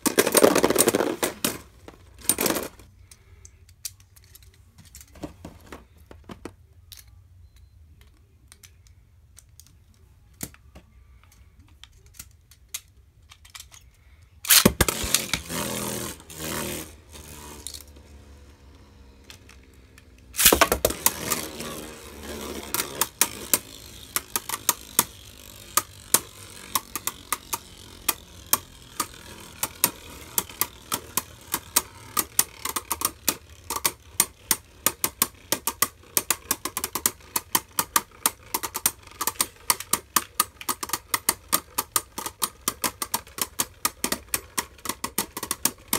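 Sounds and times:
spinning tops clacking together: 0.0s - 2.8s, 14.5s - 18.0s, 19.3s - 45.9s
small plastic clicks: 6.1s - 15.7s, 19.2s - 45.9s
spinning top launcher zip: 14.5s - 18.3s, 20.4s - 37.4s.

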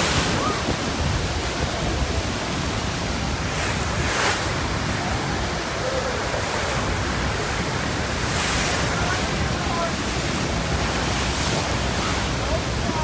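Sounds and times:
churning white water: 0.0s - 13.0s
waterfall roaring: 0.0s - 13.0s
wind buffeting microphone: 0.0s - 13.0s.

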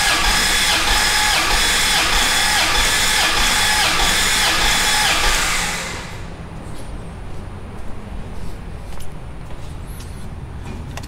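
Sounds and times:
engine starter cranking: 0.0s - 6.4s.

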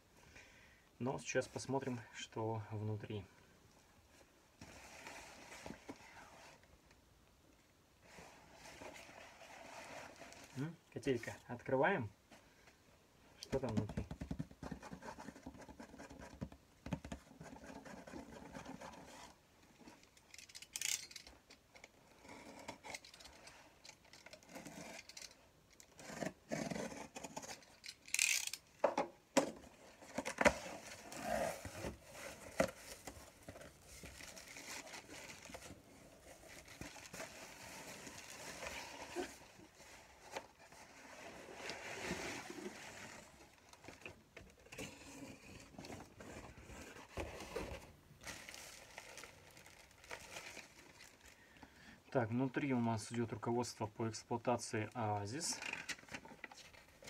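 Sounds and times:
cardboard box rustling and scraping: 29.6s - 43.8s, 44.7s - 48.0s
box being pulled open: 29.7s - 33.7s, 34.4s - 43.4s.

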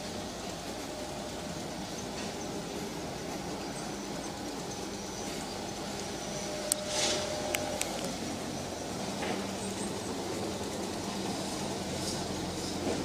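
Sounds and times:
brief hiss: 6.7s - 7.9s.

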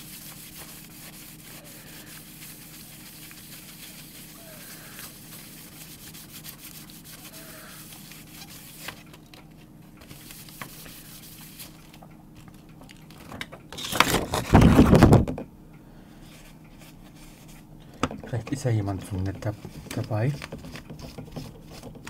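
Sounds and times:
tissue scrubbing plastic foil: 0.0s - 9.1s, 10.1s - 12.0s
plastic foil rustling: 13.8s - 15.2s.

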